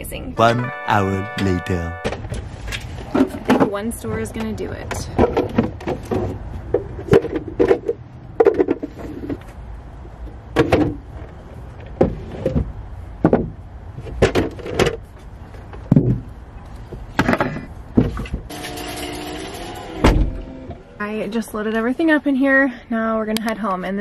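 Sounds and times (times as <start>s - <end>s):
boxes and bins knocking and thudding: 10.5s - 11.1s, 11.9s - 15.1s, 15.7s - 16.3s, 17.1s - 18.5s.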